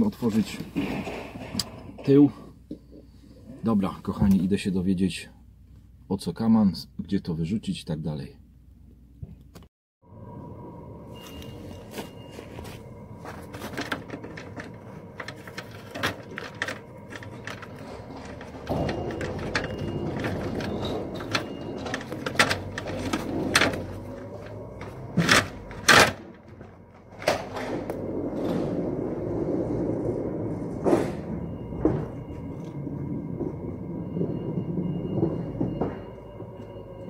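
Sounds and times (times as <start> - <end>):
low rumbling noise: 10.0 - 37.0.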